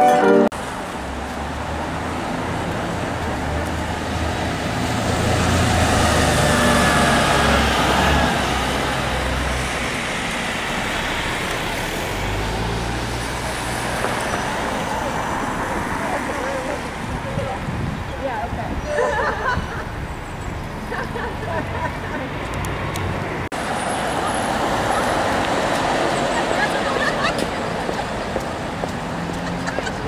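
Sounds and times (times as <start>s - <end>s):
road noise: 0.0s - 30.0s
vehicle engines humming: 0.0s - 30.0s
vehicle passing close: 1.1s - 17.2s.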